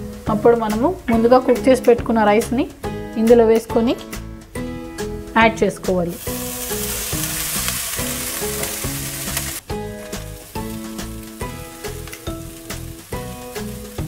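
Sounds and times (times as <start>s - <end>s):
background music: 0.0s - 14.0s
rice sizzling in a hot pan: 6.1s - 14.0s.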